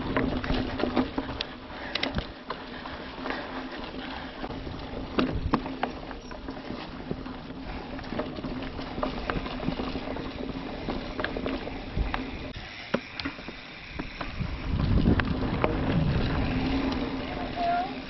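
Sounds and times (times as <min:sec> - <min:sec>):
bike clicks and rattles: 0:00.0 - 0:18.0
bike tyres on dirt: 0:00.0 - 0:18.0
wind rumble on microphone: 0:14.0 - 0:18.0.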